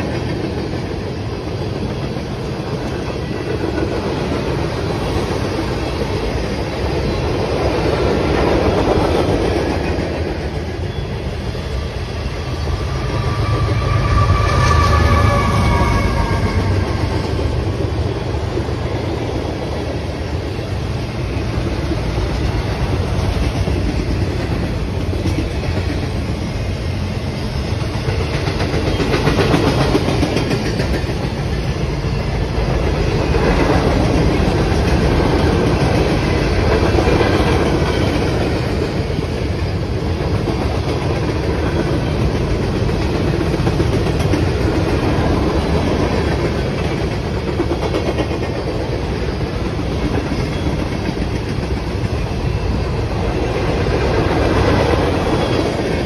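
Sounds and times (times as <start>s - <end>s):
freight train rolling past: 0.0s - 56.0s
wheels clacking over rail joints: 28.0s - 56.0s.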